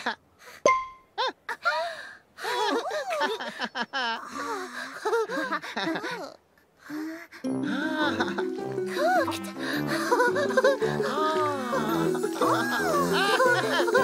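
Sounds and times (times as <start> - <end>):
cartoon voices babbling: 10.7 - 14.0.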